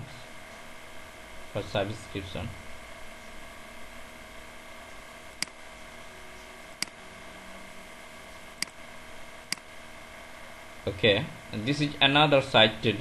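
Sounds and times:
low room noise hiss: 0.0s - 13.0s
computer mouse clicks: 5.4s - 5.6s, 9.5s - 9.7s.

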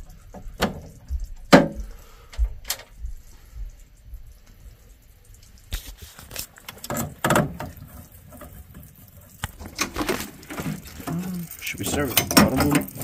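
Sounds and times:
irregular clicks and knocks: 0.0s - 3.8s, 6.6s - 10.8s, 11.8s - 13.0s.

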